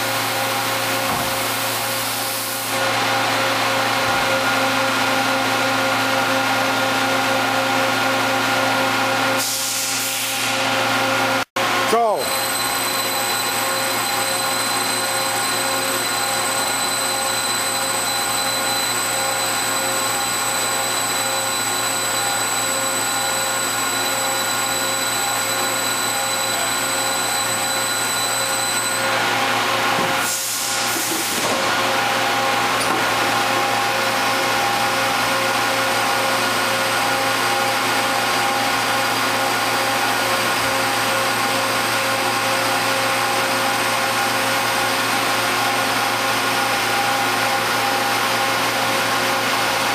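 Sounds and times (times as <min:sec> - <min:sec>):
machine mechanical hum: 0:10.4 - 0:49.9
mechanical whines: 0:12.3 - 0:29.1.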